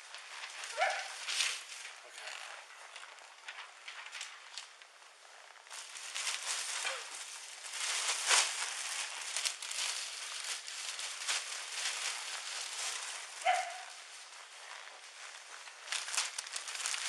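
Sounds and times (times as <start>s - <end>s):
plastic garbage bag rustling: 5.6s - 17.0s.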